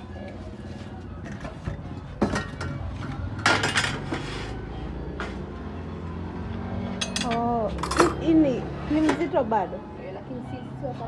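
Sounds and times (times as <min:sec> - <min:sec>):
metal pots and pans clinking: 0:01.2 - 0:04.2, 0:07.0 - 0:08.3.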